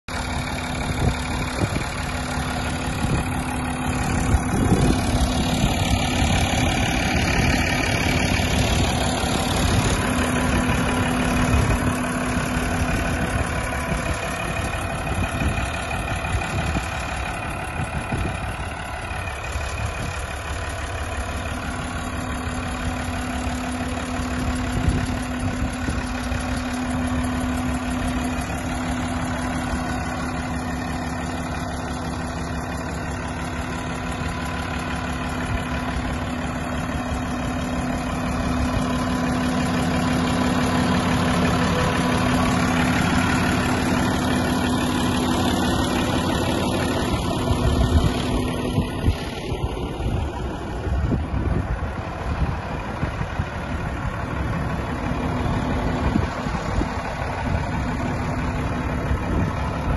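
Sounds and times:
tractor diesel engine idling: 0.0s - 59.9s.

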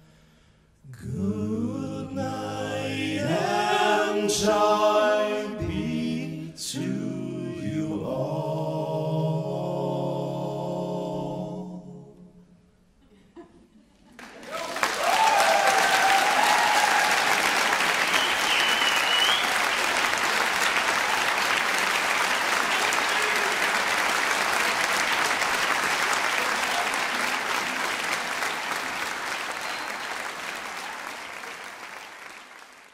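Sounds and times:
audience applauding: 14.1s - 32.9s.

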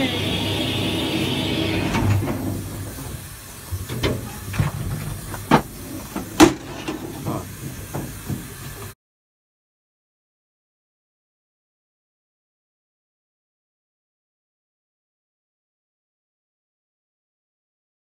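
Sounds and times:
steam hissing: 0.0s - 9.0s.

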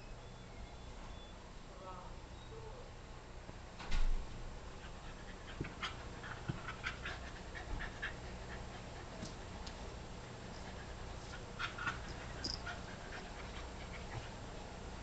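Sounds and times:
dog panting: 4.7s - 15.0s.

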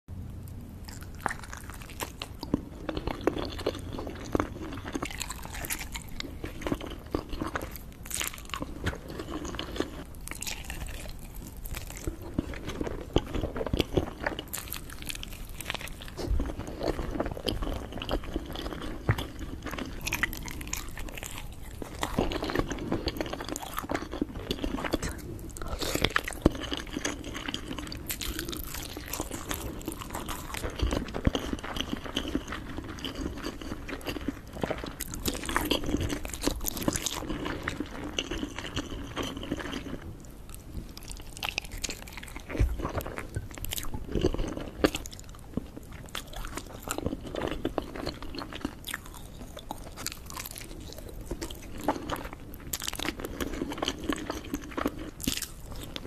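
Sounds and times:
person biting and chewing: 0.9s - 39.9s, 40.9s - 56.0s.

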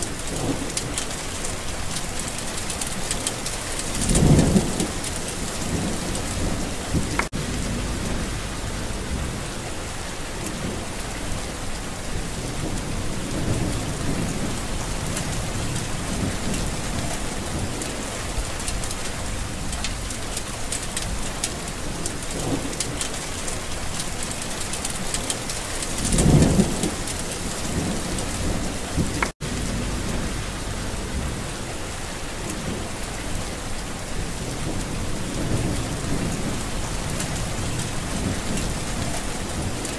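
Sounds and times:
steady rain: 0.0s - 39.9s
low roll of thunder: 3.8s - 20.3s, 25.8s - 39.9s.

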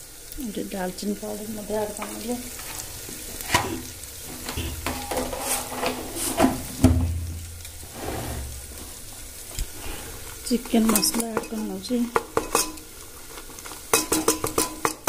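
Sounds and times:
masala sizzling in oil: 0.0s - 15.0s
steel spoon scraping a pot: 4.5s - 6.4s.

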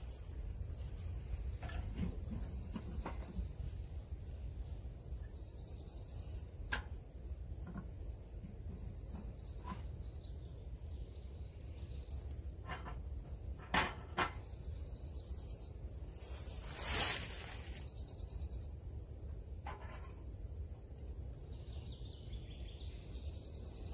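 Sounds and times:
clicks and knocks at stove: 12.6s - 14.4s.

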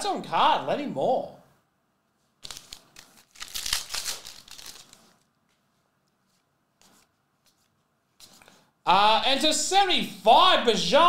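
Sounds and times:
trading cards rustling and scraping: 2.4s - 8.6s.

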